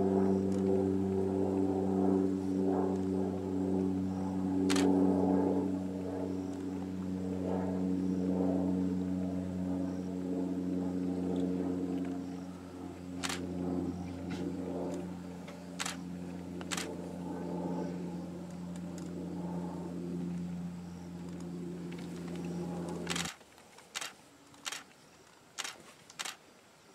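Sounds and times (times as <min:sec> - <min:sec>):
sharp clicks: 0:04.7 - 0:04.9, 0:13.2 - 0:13.4, 0:15.8 - 0:16.0, 0:16.6 - 0:16.9, 0:22.1 - 0:25.0, 0:25.6 - 0:26.4.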